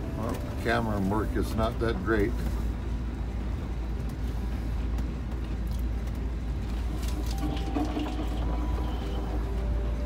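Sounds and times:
vehicle rolling on gravel: 5.0s - 10.0s.

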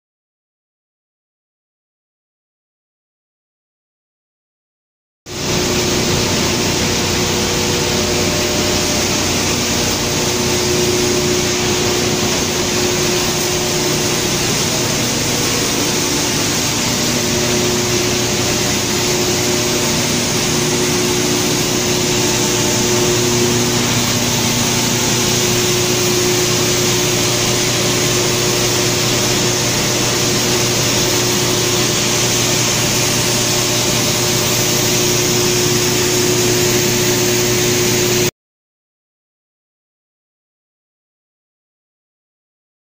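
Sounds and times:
crushing machine whirring: 5.4s - 38.2s.

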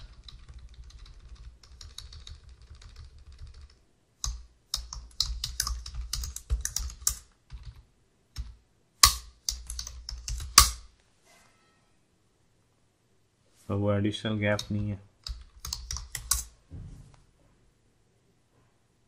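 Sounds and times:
computer keyboard typing: 0.0s - 10.8s, 14.6s - 16.5s.

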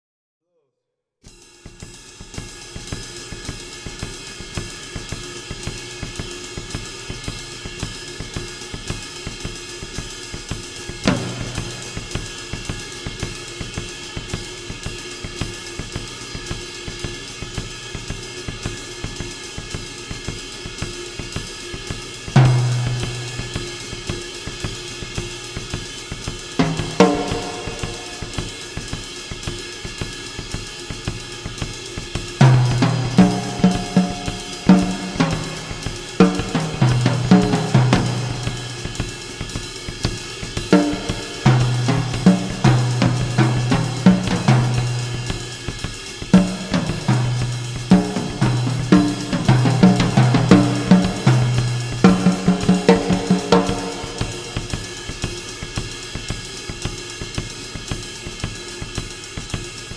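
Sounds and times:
hi-hat and cymbal strokes: 1.2s - 59.9s
heavy low drum hits: 11.0s - 12.8s, 26.6s - 29.0s, 32.4s - 55.4s.

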